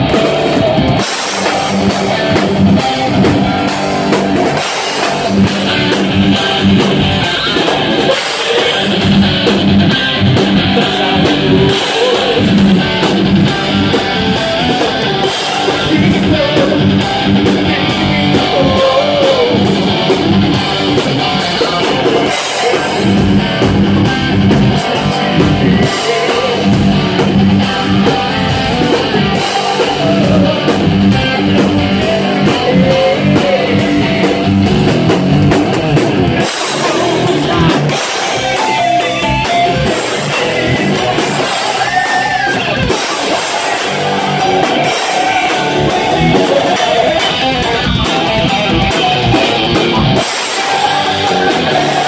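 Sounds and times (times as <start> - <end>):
distorted electric guitar: 0.0 - 52.0
drum kit: 0.0 - 52.0
man singing: 6.3 - 34.6, 36.4 - 52.0.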